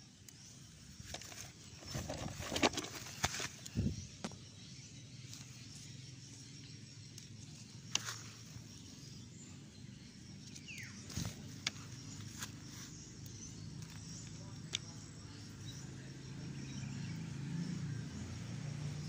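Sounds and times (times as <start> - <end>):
low outdoor hum: 0.0 - 19.0
leaf rustling: 7.0 - 9.1.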